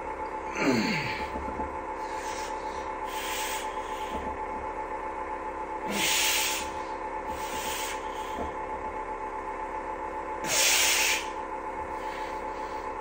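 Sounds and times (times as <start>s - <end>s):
steady hum: 0.0s - 13.0s
breathy hissing rushes: 5.9s - 8.3s, 10.4s - 11.3s.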